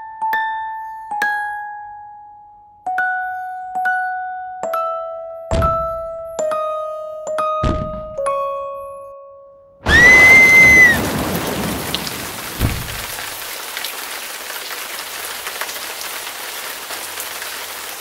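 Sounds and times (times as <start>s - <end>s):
low thud: 5.5s - 6.2s, 7.6s - 8.3s, 12.6s - 13.2s
high whistle-like tone: 9.9s - 11.0s.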